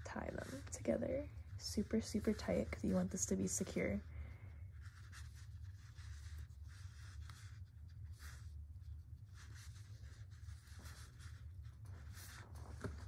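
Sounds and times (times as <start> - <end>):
yarn rustling: 0.0 - 13.0.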